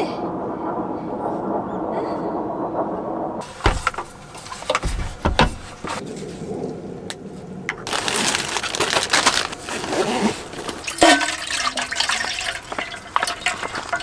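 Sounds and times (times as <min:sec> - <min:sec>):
liquid pouring into metal container: 0:10.7 - 0:14.0.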